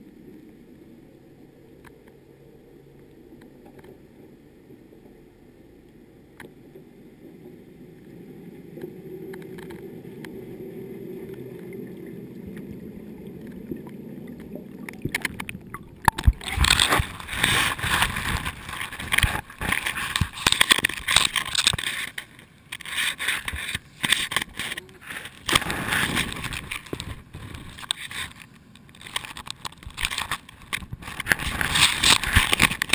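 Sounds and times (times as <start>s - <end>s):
muffled underwater rumble: 0.0s - 21.8s
water splashing and dripping: 8.0s - 22.2s.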